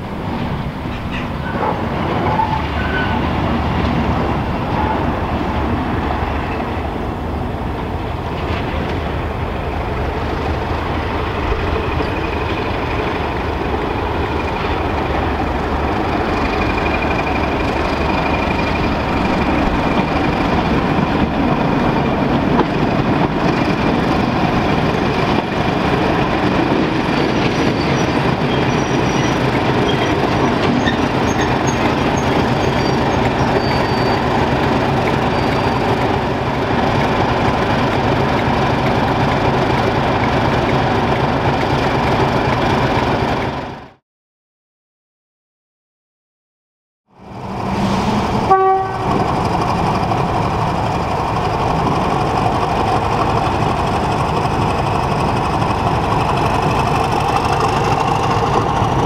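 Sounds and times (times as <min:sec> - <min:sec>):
locomotive engine rumble: 0:00.0 - 0:43.8, 0:47.2 - 0:59.0
wheels squealing on rails: 0:00.9 - 0:03.5, 0:26.5 - 0:36.2.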